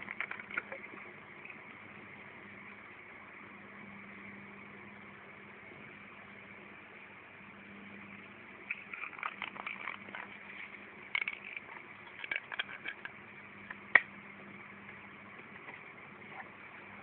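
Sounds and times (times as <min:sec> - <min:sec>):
steady low hum: 0:00.0 - 0:17.0
handling clicks and crackles: 0:08.7 - 0:14.1.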